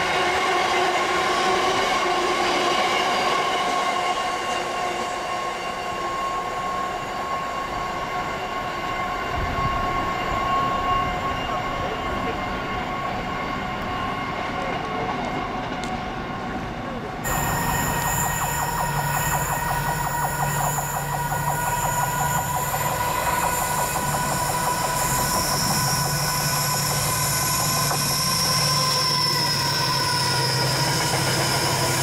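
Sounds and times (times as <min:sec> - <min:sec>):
train whine of held tones: 0:00.0 - 0:32.0
train running gear rumble: 0:09.1 - 0:32.0.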